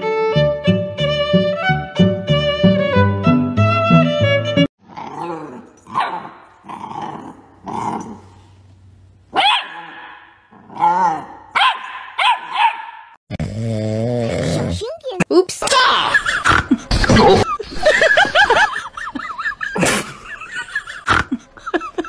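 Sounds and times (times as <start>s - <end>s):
violin music: 0.0s - 4.7s
puppy yipping and barking: 9.4s - 10.3s, 11.6s - 13.2s.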